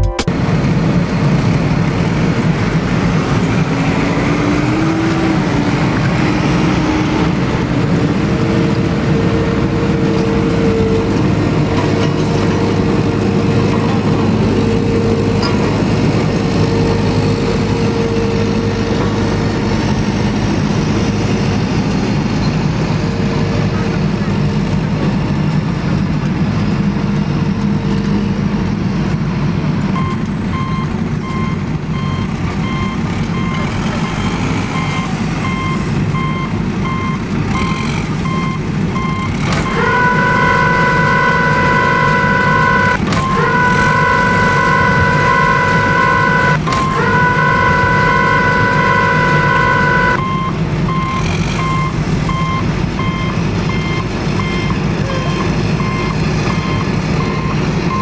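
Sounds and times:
truck engine rumble: 0:00.0 - 0:58.0
reversing beeper: 0:29.4 - 0:58.0
long steady tones: 0:39.0 - 0:50.4.

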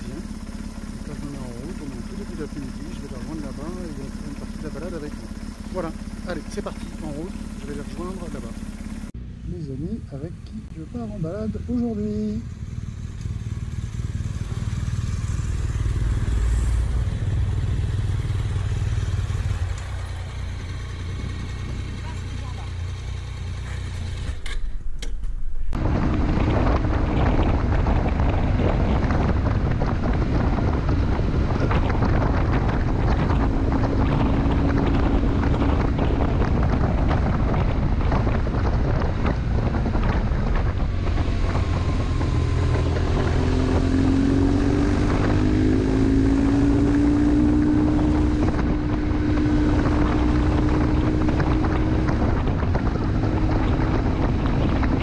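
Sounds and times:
motorcycle engine: 0:00.0 - 0:55.0
wind rushing over microphone: 0:25.4 - 0:55.0.

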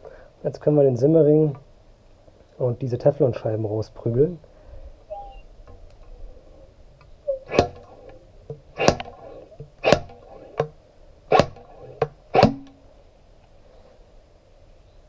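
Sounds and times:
sharp metal-on-metal clacks: 0:08.5 - 0:12.8.

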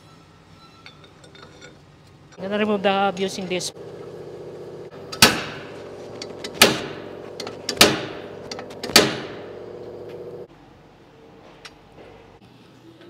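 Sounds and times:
steady hum: 0:02.4 - 0:10.7.

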